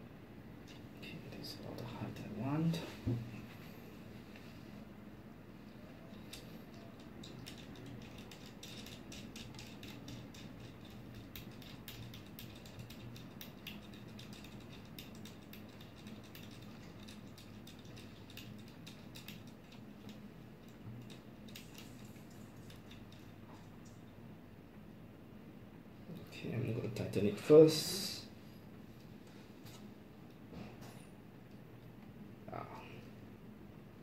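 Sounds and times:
low steady hum: 0:00.0 - 0:34.0
small clicks and ticks: 0:06.1 - 0:24.2.

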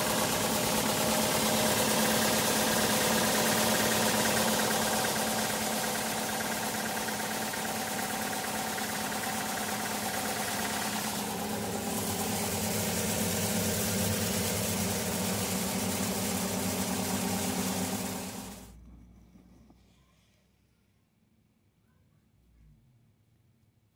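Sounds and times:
grain cleaner humming and rattling: 0:00.0 - 0:18.7
grain pouring hiss: 0:09.2 - 0:18.6.

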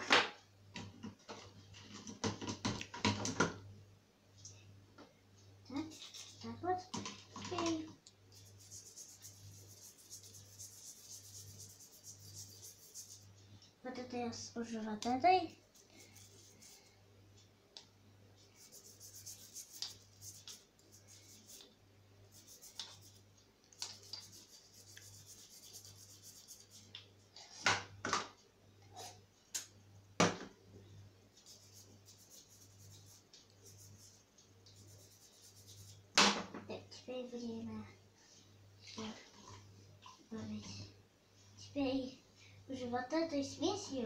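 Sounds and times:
toothbrush scrubbing metal: 0:05.8 - 0:06.6, 0:08.3 - 0:13.4, 0:15.7 - 0:16.9, 0:18.5 - 0:21.7, 0:22.3 - 0:23.2, 0:23.8 - 0:27.0, 0:31.4 - 0:36.0.

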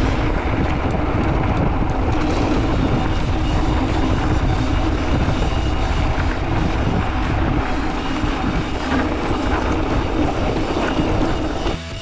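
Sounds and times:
wind rushing over microphone: 0:00.0 - 0:11.8
bike rattling over bumpy ground: 0:00.0 - 0:12.0.

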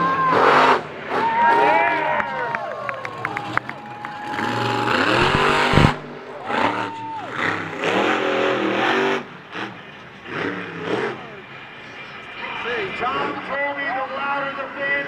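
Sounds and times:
truck engine revving: 0:04.2 - 0:12.1.

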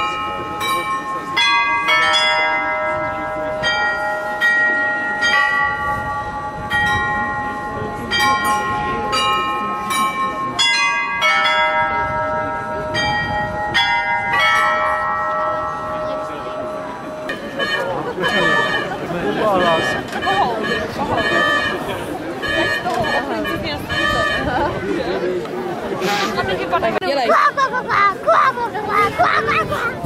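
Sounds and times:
carillon bells playing a tune: 0:00.0 - 0:20.3.

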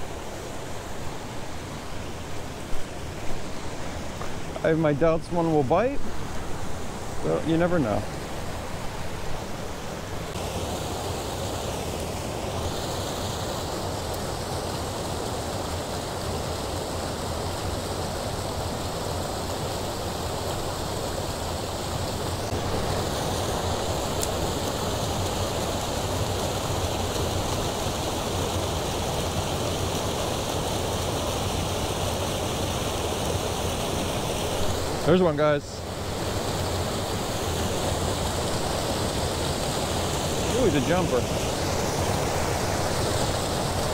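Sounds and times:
water pouring over spillway: 0:10.4 - 0:43.9.

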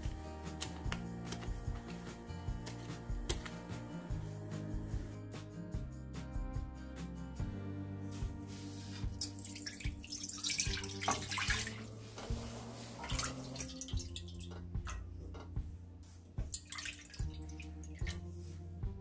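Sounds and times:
liquid poured from cup: 0:09.2 - 0:11.8
water pouring into wok: 0:09.2 - 0:11.9, 0:16.6 - 0:18.2.

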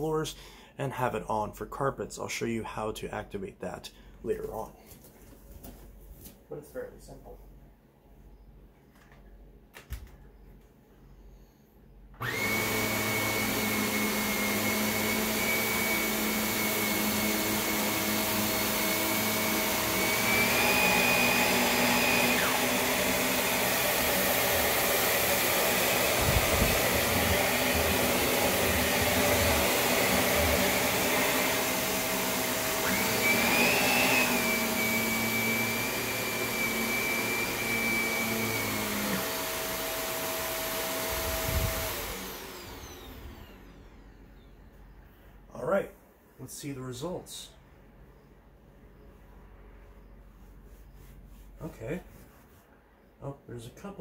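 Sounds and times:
upright vacuum running: 0:12.2 - 0:44.6.

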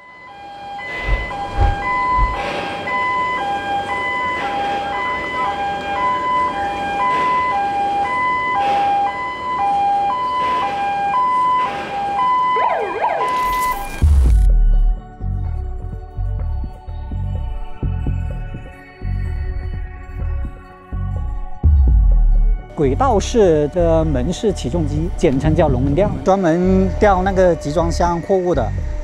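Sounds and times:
two-tone electronic alarm: 0:00.0 - 0:15.0
noisy background: 0:00.0 - 0:29.0.

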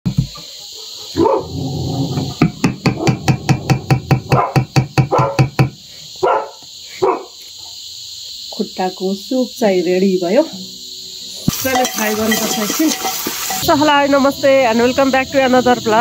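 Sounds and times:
dog barking: 0:00.7 - 0:01.7, 0:04.3 - 0:05.5, 0:06.2 - 0:07.8.

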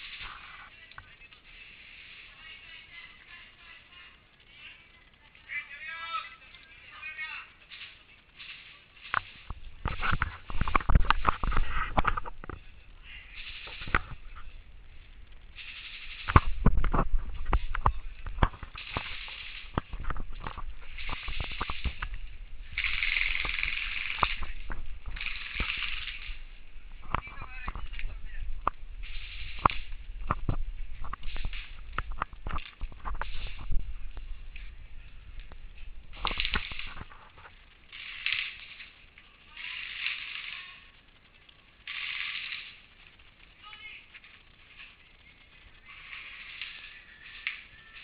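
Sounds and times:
hissing: 0:06.5 - 0:48.0
airsoft gun bursts: 0:15.6 - 0:16.7, 0:17.5 - 0:26.4, 0:37.9 - 0:38.9, 0:39.6 - 0:41.0, 0:41.8 - 0:42.9.

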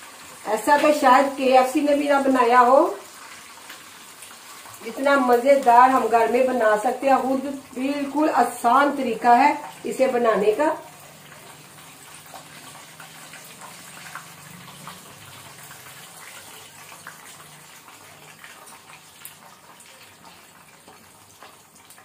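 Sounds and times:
chicken sizzling in hot oil: 0:00.0 - 0:22.0.

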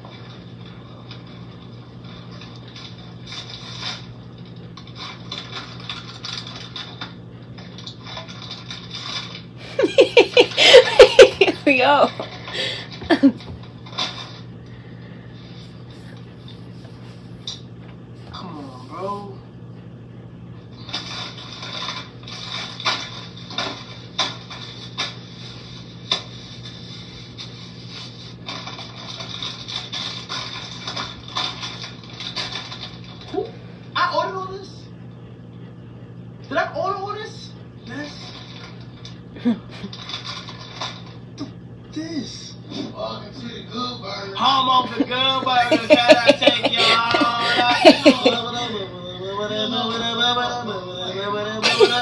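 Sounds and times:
low steady hum: 0:00.0 - 0:52.0
paper and plastic bags rustling: 0:39.9 - 0:41.1.

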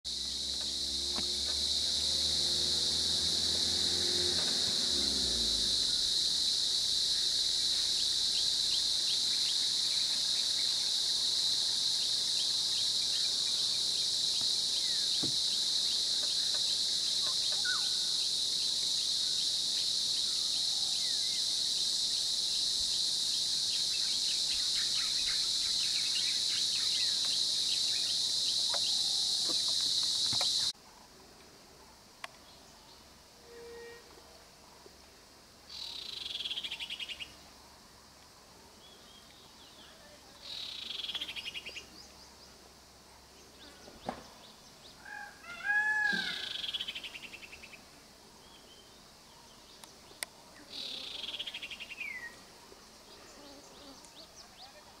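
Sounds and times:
vehicle engine running: 0:00.1 - 0:08.9
insects droning: 0:00.1 - 0:55.0.

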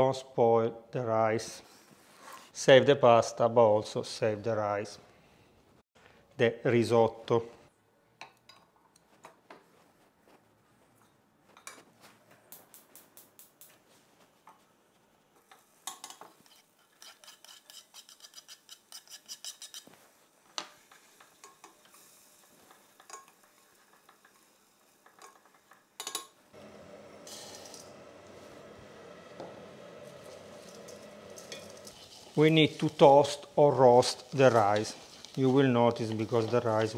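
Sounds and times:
steady hiss: 0:19.7 - 0:36.9.

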